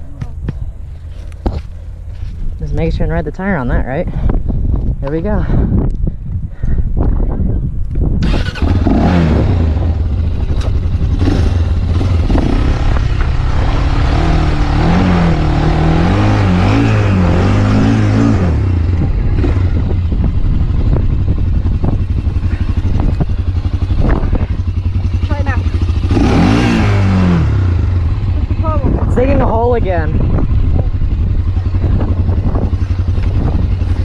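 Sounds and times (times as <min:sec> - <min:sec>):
quad engine revving: 0:08.2 - 0:34.0.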